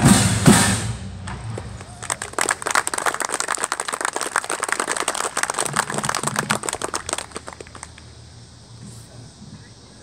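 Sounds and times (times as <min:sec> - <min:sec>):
audience clapping: 0:01.6 - 0:08.1.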